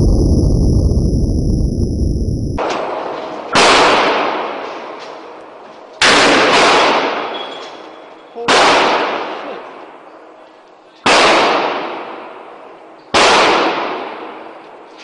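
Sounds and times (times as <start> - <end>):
handgun shots echoing indoors: 6.0 - 7.8.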